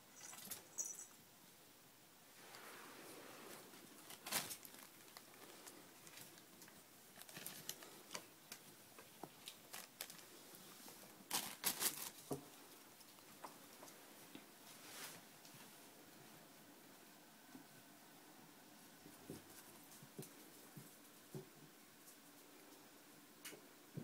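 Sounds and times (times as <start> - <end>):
plastic bag crinkling: 3.8 - 8.3, 9.3 - 10.3, 11.3 - 12.4.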